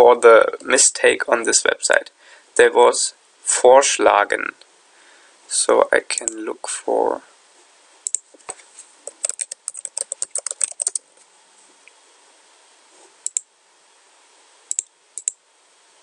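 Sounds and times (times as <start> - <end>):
computer keyboard typing: 9.1 - 11.0.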